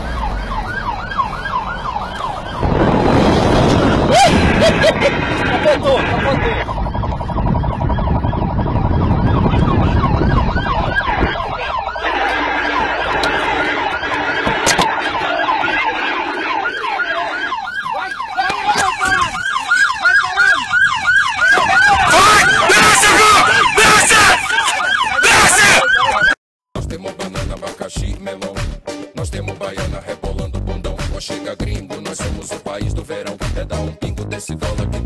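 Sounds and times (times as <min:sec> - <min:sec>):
siren wailing and yelping: 0:00.0 - 0:26.4
low rumble: 0:02.4 - 0:14.1.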